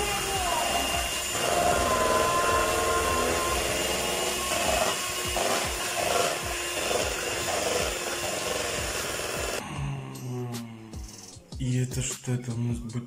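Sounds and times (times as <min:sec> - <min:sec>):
electric hand mixer whisking batter: 0:00.0 - 0:09.6.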